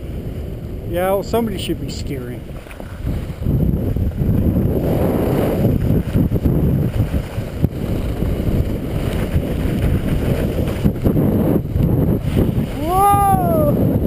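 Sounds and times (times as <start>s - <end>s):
wind buffeting microphone: 0.0s - 14.0s
skis scraping hard snow: 1.9s - 12.8s.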